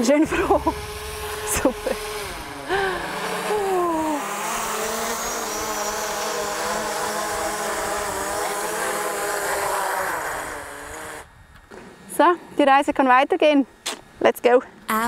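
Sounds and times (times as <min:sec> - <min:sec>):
drone propellers whining: 0:00.0 - 0:11.6.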